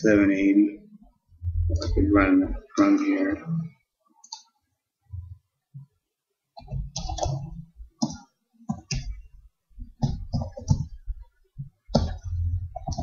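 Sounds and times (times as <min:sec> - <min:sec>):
computer keyboard typing: 0:06.6 - 0:09.2, 0:10.0 - 0:11.0, 0:11.9 - 0:13.0.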